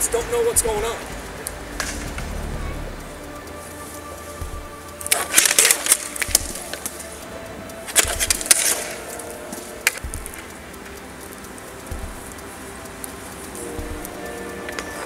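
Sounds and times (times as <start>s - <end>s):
hockey sticks clacking: 7.9s - 10.5s.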